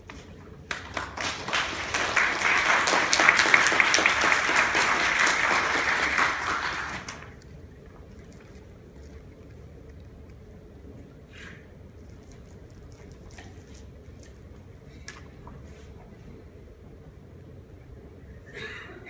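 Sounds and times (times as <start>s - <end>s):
audience applauding: 0.7s - 7.4s.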